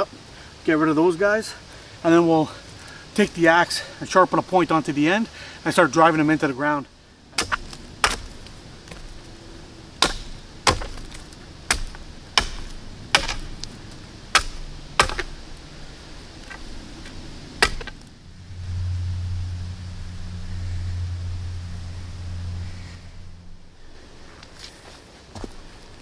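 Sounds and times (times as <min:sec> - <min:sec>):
steady low hum: 0:06.3 - 0:26.0
axe chopping wood: 0:07.4 - 0:09.1, 0:10.0 - 0:13.7, 0:14.3 - 0:15.4, 0:17.6 - 0:18.0.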